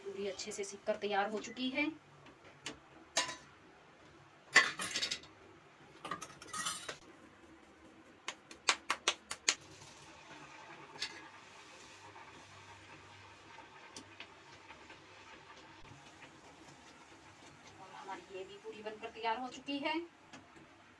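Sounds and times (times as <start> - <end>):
frying in hot oil: 0.0 - 3.6, 9.2 - 20.9
steel utensils clinking: 3.2 - 3.4, 6.1 - 7.0
hands slapping dough: 8.2 - 9.6.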